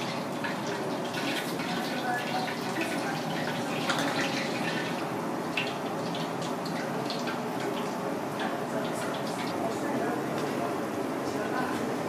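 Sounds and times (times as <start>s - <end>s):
ladle stirring and clinking: 0.0s - 5.0s
water bubbling in a pot: 0.0s - 9.8s.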